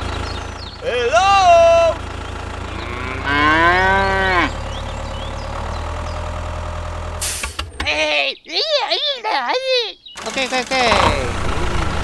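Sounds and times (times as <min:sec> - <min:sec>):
low engine hum: 0:00.0 - 0:07.9, 0:10.1 - 0:12.0
cow mooing: 0:02.7 - 0:04.6.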